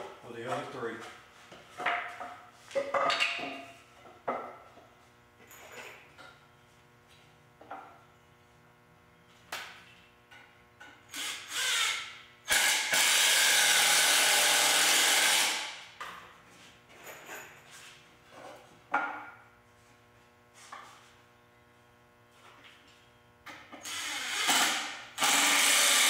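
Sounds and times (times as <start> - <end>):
impact screwdriver driving screw: 11.1 - 15.6, 23.8 - 26.0.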